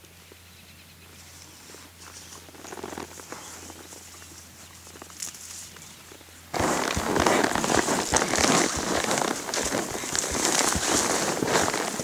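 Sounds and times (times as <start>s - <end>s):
footsteps on dry grass: 1.2s - 12.0s.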